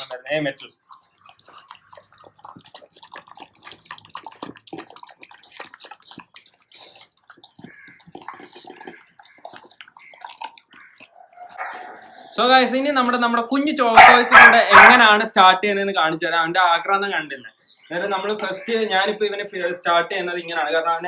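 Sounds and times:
dog slurping and chewing: 0.0s - 12.2s.

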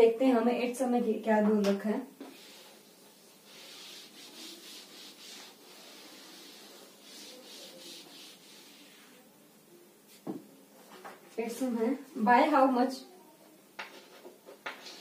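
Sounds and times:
sponge wiping a chalkboard: 2.2s - 9.3s.

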